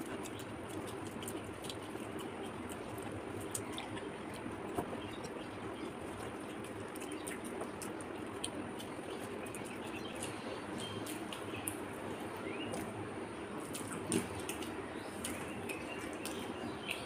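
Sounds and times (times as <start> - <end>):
chewing: 0.0 - 11.8
fingers mixing rice wet squishes: 0.0 - 17.0.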